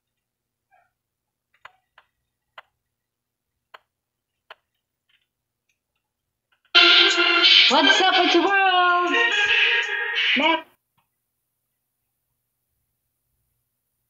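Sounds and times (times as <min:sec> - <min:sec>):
loud music with voice: 0:06.8 - 0:10.7.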